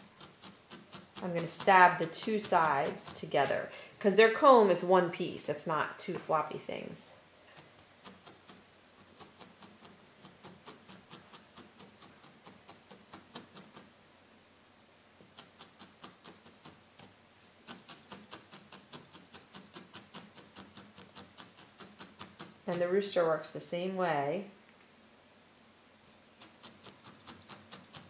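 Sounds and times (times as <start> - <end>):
felting needle stabbing wool: 0.0 - 3.8, 7.6 - 13.9, 15.2 - 23.0, 26.4 - 28.0.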